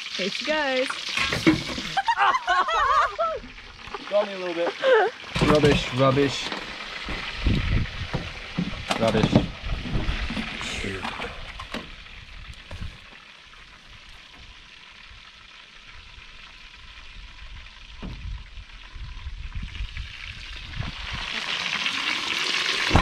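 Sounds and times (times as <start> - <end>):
food deep-frying in oil: 0.0 - 23.0.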